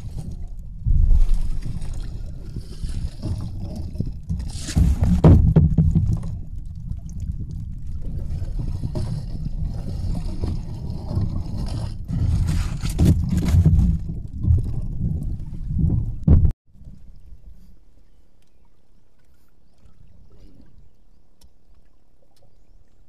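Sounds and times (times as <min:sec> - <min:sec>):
wind and water rumble: 0:00.0 - 0:23.0
gear rustling and scraping: 0:08.6 - 0:14.0.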